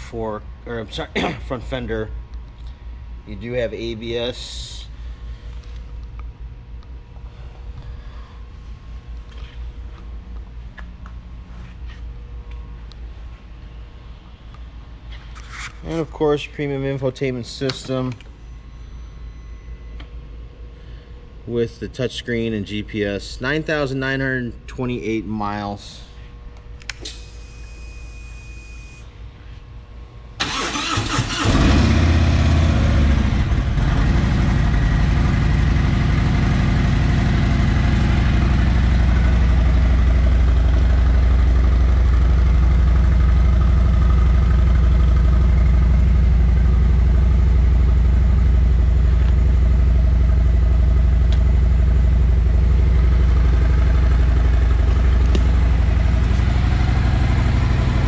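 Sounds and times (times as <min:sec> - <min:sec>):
motorcycle starter cranking: 0:30.4 - 0:31.7
motorcycle engine idling: 0:33.2 - 0:58.0.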